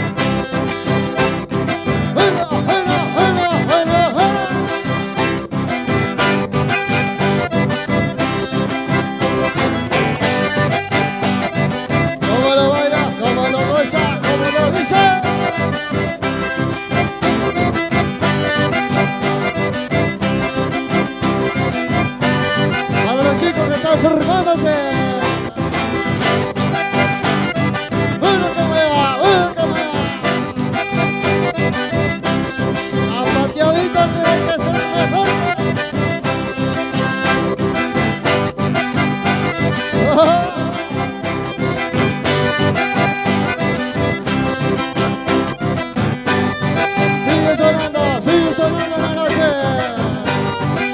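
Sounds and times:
live dance band with accordion: 0.0 - 50.9
person singing or shouting: 2.2 - 4.8, 12.3 - 15.6, 23.0 - 25.7, 28.2 - 30.6, 33.0 - 35.6, 40.0 - 41.0, 47.2 - 50.5.

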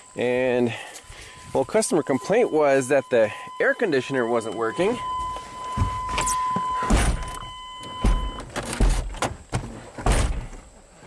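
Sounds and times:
high-pitched tone: 0.0 - 8.4.

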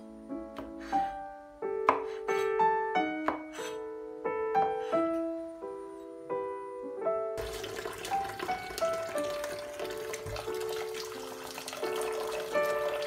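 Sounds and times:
slow piano music: 0.0 - 13.0
cleaver knocking on cutting board: 3.2 - 3.5.

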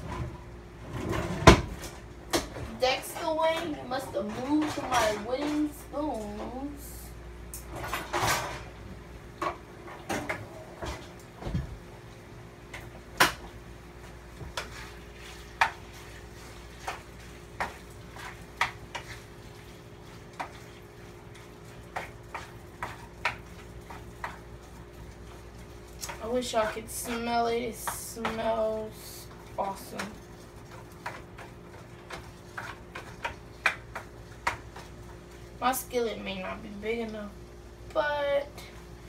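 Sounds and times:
wooden spoon scraping a skillet: 14.4 - 35.4.

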